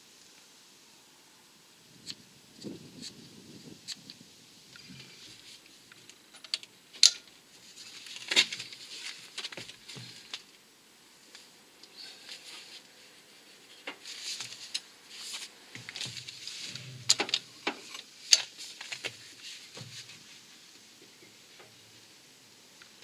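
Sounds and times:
light clicks and rustles: 3.9 - 10.6, 13.6 - 21.8.

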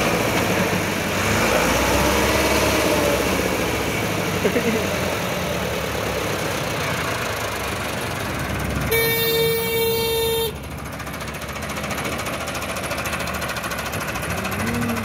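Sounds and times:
tractor diesel engine labouring: 0.0 - 15.0
vehicle horn blast: 8.9 - 10.6.

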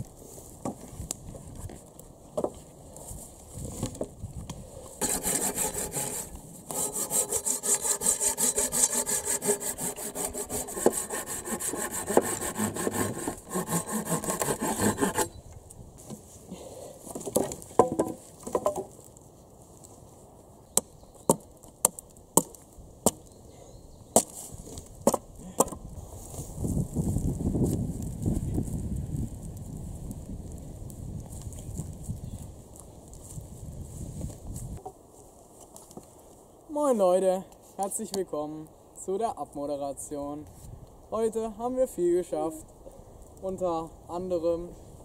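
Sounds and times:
hand saw cutting wood: 5.0 - 15.4.

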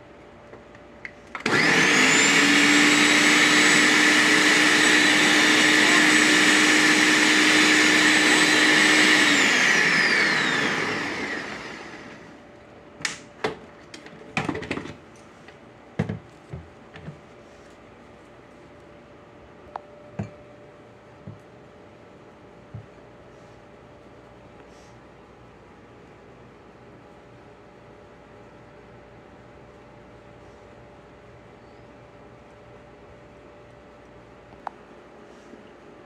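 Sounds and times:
blender motor running: 1.4 - 12.3.

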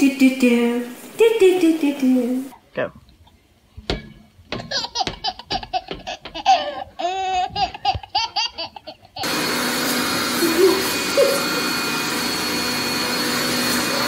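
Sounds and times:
baby laughing: 4.6 - 9.3, 10.3 - 11.6
robot vacuum whirring: 9.2 - 14.0.

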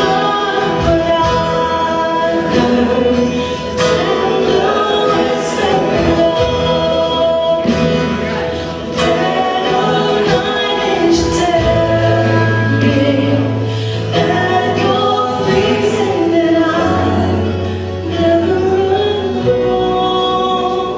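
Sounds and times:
voices singing together: 0.0 - 20.9
worship band playing: 0.0 - 20.9.

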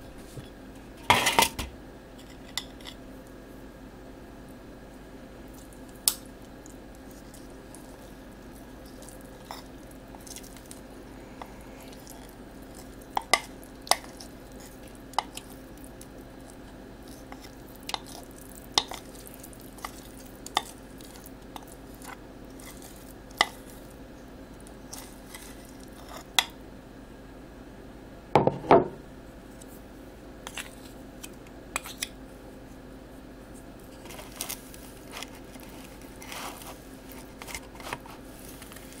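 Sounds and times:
faint steady hum: 0.0 - 39.0
spoon scraping mixing bowl: 24.9 - 26.5.

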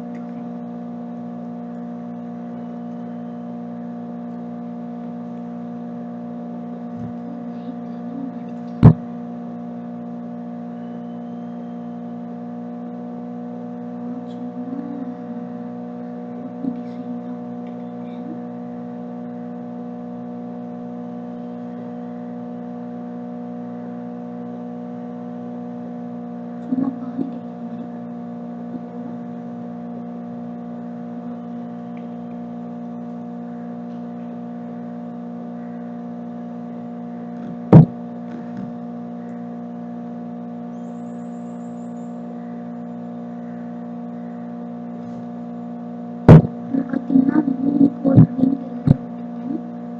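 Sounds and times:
steady hum: 0.0 - 49.9
sharp knock: 37.7 - 37.9, 46.3 - 46.6.

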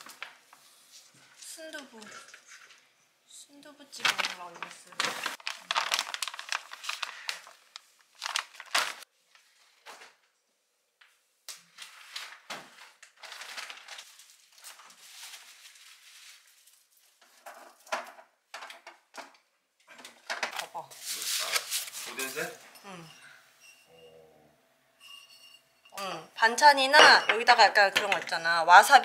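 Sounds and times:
packaging crinkling and rustling: 4.0 - 10.2, 11.6 - 18.0.

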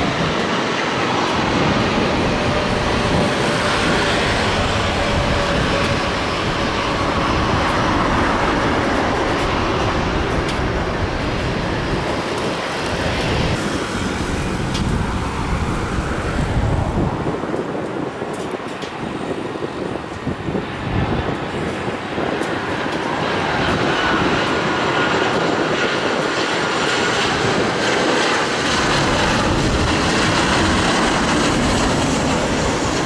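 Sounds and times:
jet airliner engine rush: 0.0 - 33.0.

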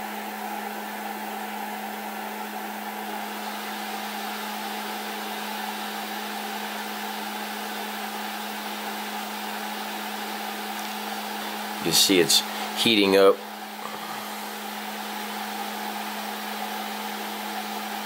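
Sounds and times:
cooling fans whirring: 0.0 - 18.0.

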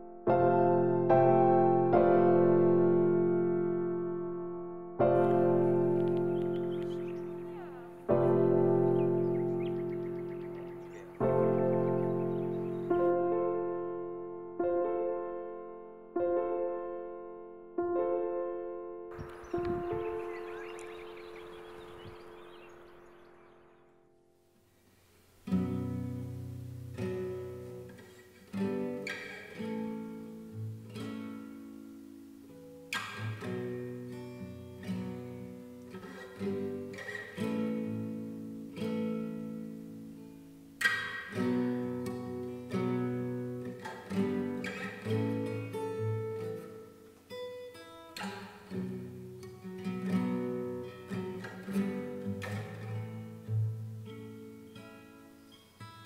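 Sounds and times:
acoustic guitar playing: 0.0 - 56.0.

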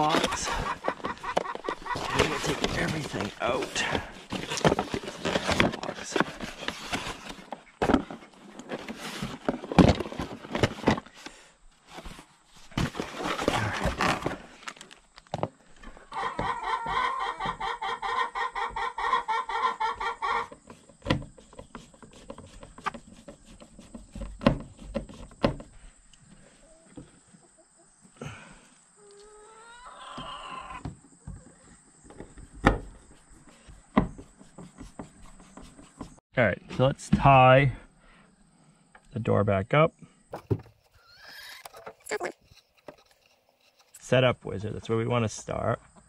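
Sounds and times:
chicken squawking: 0.0 - 2.5, 16.1 - 20.5, 29.3 - 30.9, 40.9 - 42.4
cardboard box rustling: 0.0 - 11.1, 11.9 - 14.9
plastic parts clattering: 1.3 - 11.1.

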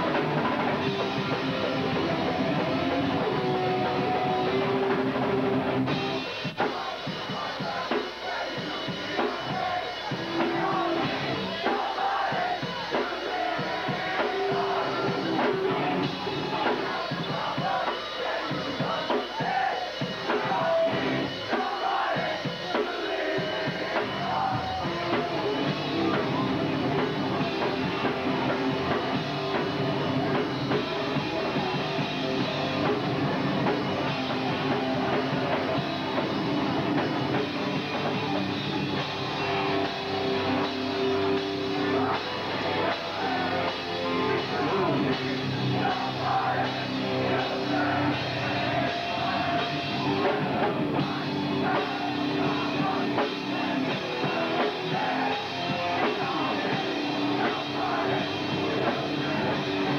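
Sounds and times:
punk band playing live: 0.0 - 59.9.

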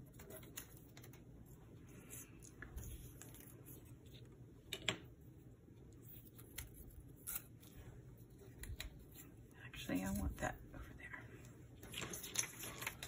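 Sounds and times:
paper rustling: 11.8 - 13.0.

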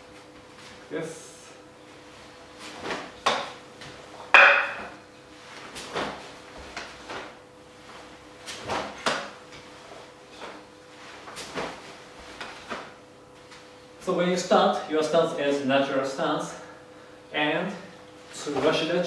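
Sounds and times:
wooden tonfa swinging strokes: 2.6 - 13.6.

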